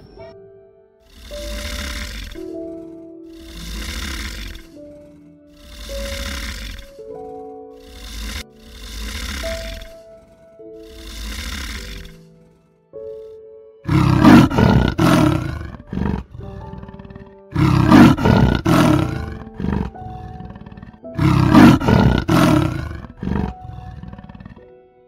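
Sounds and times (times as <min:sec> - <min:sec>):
soft background music: 0:00.0 - 0:25.0
large animal calling: 0:01.0 - 0:07.1, 0:07.8 - 0:13.3, 0:13.9 - 0:24.6.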